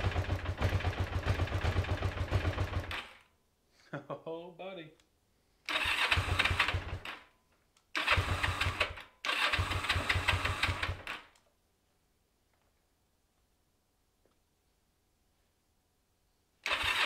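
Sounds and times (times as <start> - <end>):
motorcycle engine cranking on starter: 0.0 - 3.2, 5.7 - 7.2, 8.0 - 11.4, 16.6 - 17.0.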